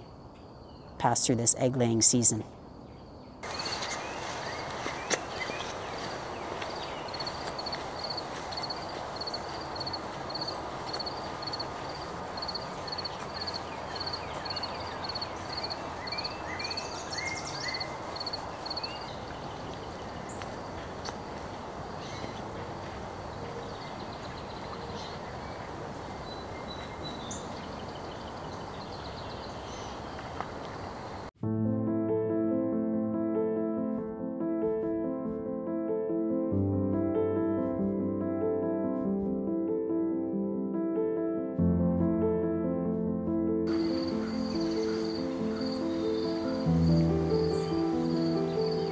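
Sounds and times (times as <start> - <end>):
birds chirping: 0.0 - 31.3, 43.7 - 48.9
steady background hiss: 0.0 - 31.3, 43.7 - 48.9.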